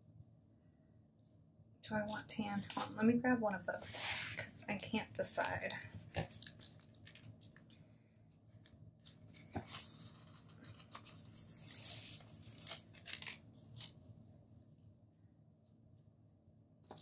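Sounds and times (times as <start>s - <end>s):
paper sticker sheets rustling: 2.1s - 3.0s, 8.6s - 14.0s.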